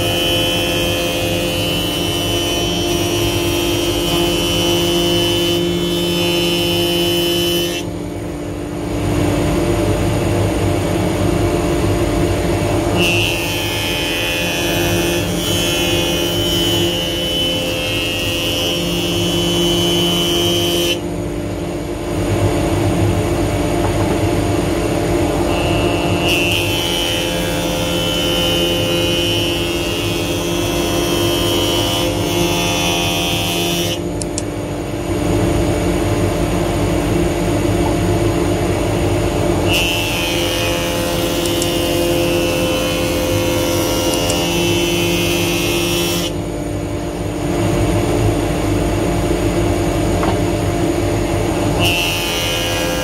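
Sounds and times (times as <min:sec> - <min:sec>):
planer cutting wood: 0:00.0 - 0:07.9, 0:12.3 - 0:21.0, 0:23.8 - 0:34.5, 0:37.8 - 0:46.4, 0:50.1 - 0:53.0
planer motor hum: 0:00.0 - 0:53.0.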